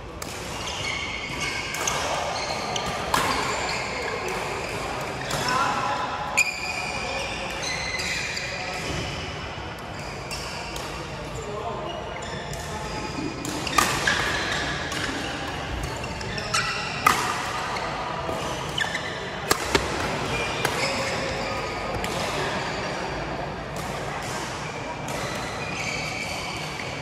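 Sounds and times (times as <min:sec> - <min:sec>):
racket striking shuttlecock: 0:19.4 - 0:21.2.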